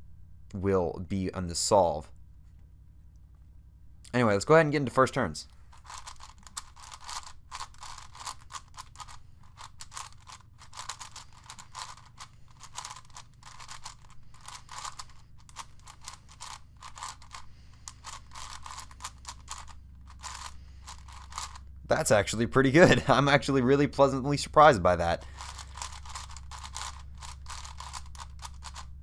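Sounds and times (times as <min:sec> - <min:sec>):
plastic puzzle cube clicking: 0:05.8 - 0:21.6, 0:25.4 - 0:28.9.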